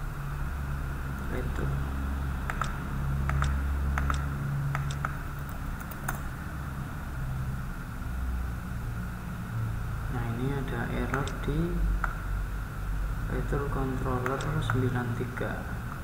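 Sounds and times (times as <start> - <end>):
steady low hum: 0.0 - 16.0
keyboard typing: 2.4 - 6.3, 11.0 - 11.4.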